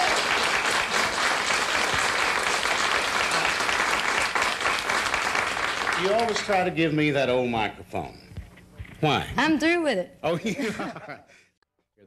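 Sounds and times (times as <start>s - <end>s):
audience applauding: 0.0s - 6.7s.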